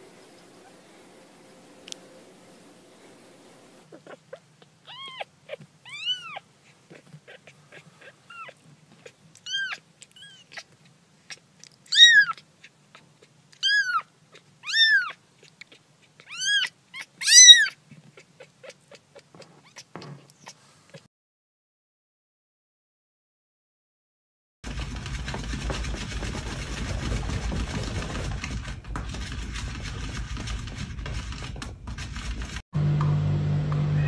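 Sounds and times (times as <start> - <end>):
kittens mewing: 3.8 - 21.1.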